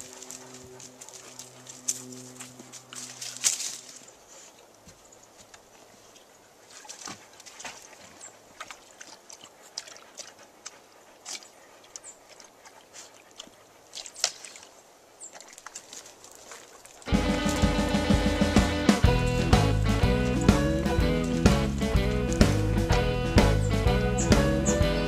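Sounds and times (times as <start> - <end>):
dog splashing in water: 6.7 - 23.7.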